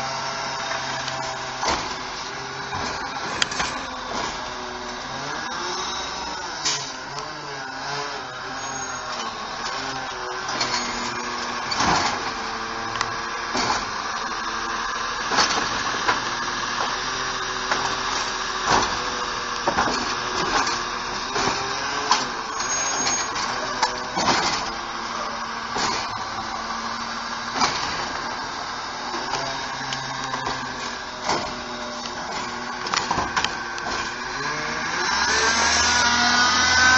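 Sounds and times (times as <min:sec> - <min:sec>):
hydraulic whine: 0:00.0 - 0:36.9
truck engine running: 0:00.0 - 0:36.9
clanks and knocks: 0:00.8 - 0:04.6, 0:09.1 - 0:14.1, 0:15.2 - 0:26.6, 0:27.4 - 0:28.3, 0:29.1 - 0:34.5.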